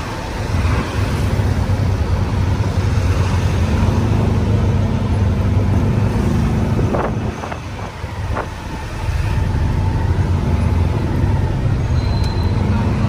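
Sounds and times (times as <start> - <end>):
tuk-tuk engine running: 0.0 - 13.0
wind and road noise: 0.0 - 13.0.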